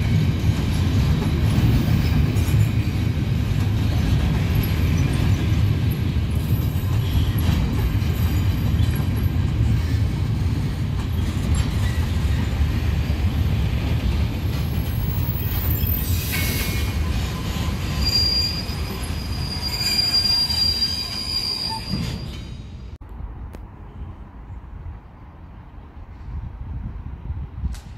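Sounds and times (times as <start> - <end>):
train wheels rumbling on rails: 0.0 - 23.0, 25.8 - 27.9
high-pitched wheel squeal: 15.2 - 22.6.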